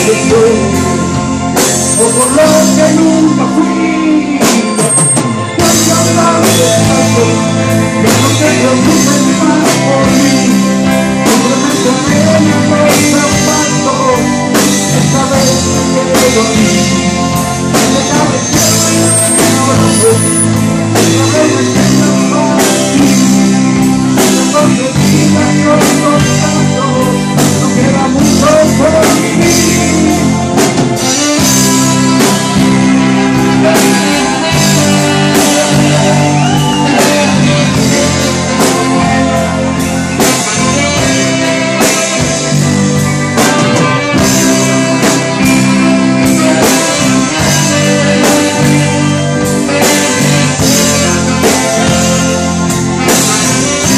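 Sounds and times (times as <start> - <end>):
drum kit beat: 0.0 - 53.9
electric bass: 0.0 - 53.9
electric guitars: 0.0 - 53.9
person singing: 0.0 - 53.9.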